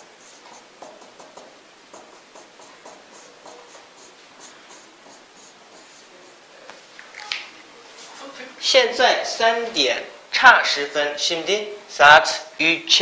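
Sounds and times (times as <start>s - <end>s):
marker squeaking on whiteboard: 0.0s - 6.5s.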